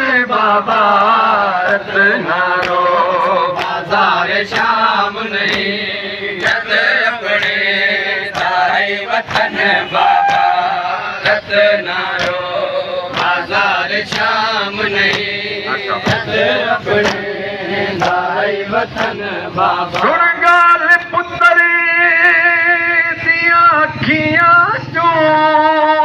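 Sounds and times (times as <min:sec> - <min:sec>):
men chanting together: 0:00.0 - 0:26.0
chest-beating slaps: 0:05.4 - 0:12.5, 0:13.1 - 0:15.4, 0:16.9 - 0:17.3.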